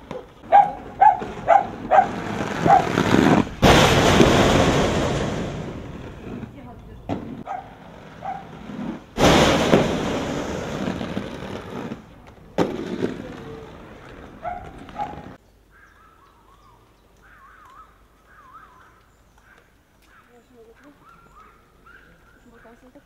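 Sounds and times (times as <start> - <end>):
birds chirping: 0.0 - 3.6, 5.8 - 8.6, 12.1 - 23.0
skate clacking on ground: 0.0 - 4.4, 10.7 - 15.4
inline skate wheels rolling on pavement: 0.0 - 15.4.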